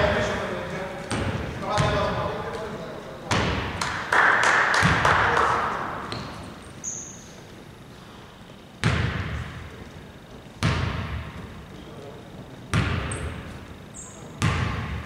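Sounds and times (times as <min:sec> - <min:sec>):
basketball bouncing on hardwood: 0:08.8 - 0:09.6, 0:10.6 - 0:11.5, 0:14.4 - 0:15.0.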